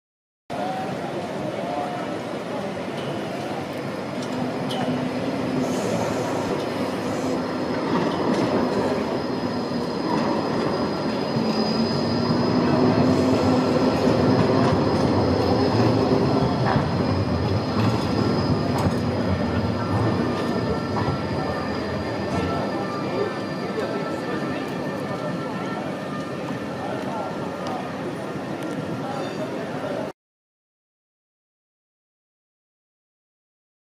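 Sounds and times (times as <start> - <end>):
tram wheels rumbling: 0.8 - 30.1
high steady squeal: 4.2 - 27.5.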